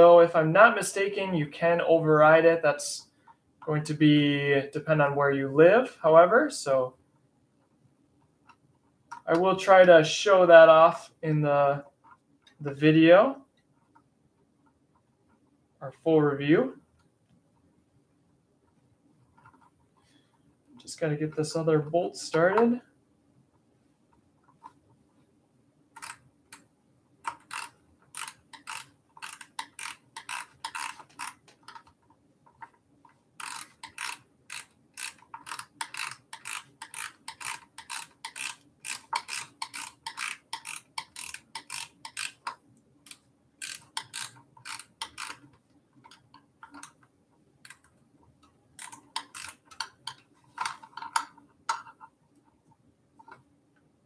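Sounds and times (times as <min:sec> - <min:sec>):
ratchet wrench clicking: 0:27.3 - 0:31.4, 0:33.4 - 0:45.4, 0:48.8 - 0:50.2.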